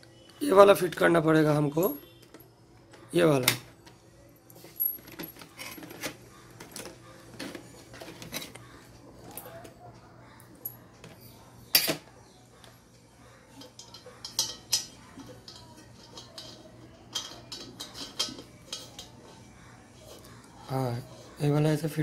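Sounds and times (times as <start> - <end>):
metal fittings clinking: 13.6 - 19.2.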